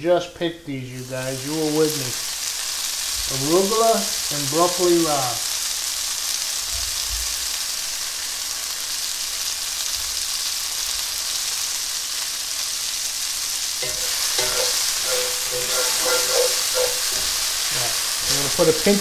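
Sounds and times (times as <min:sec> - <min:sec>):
greens sizzling in a frying pan: 0:00.4 - 0:19.0
utensil scraping and knocking on pan: 0:13.8 - 0:18.4.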